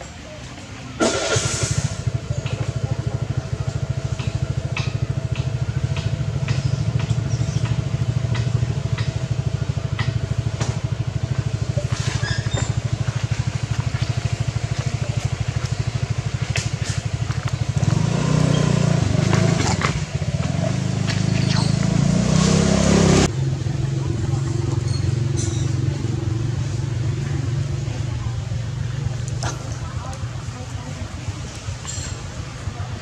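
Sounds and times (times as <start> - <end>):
engine idling: 0.6 - 22.2.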